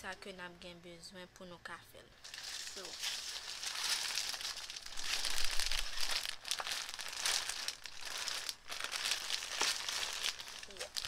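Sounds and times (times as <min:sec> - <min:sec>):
plastic packaging crinkling: 0:02.2 - 0:11.0.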